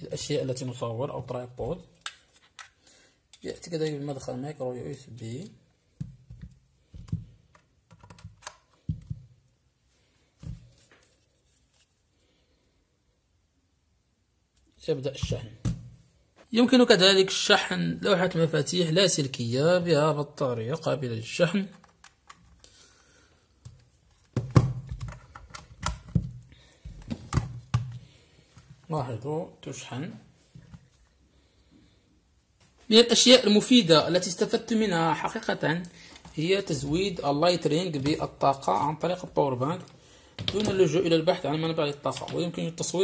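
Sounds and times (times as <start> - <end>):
plastic clicks and knocks: 23.6 - 26.4.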